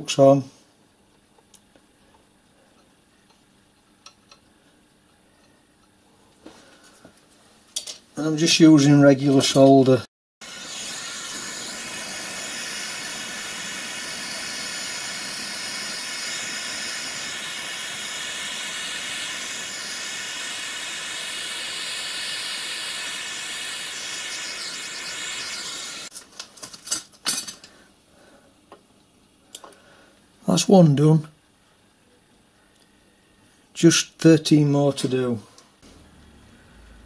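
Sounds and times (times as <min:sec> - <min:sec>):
gas torch flame hissing: 0:10.4 - 0:26.1.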